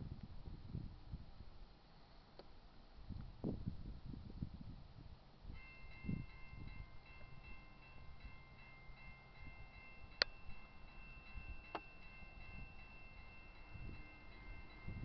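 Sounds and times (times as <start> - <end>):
wind rumble on microphone: 0.0 - 1.7, 3.0 - 15.0
electronic crossing bell ringing: 5.6 - 15.0.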